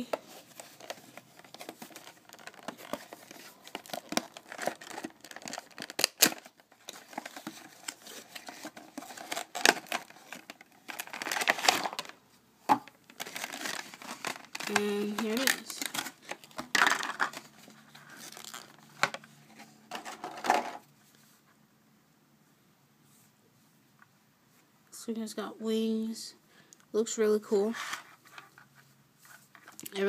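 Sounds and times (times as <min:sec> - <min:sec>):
plastic crinkling: 0:00.0 - 0:12.2, 0:13.0 - 0:19.2
cardboard tearing: 0:13.2 - 0:16.2.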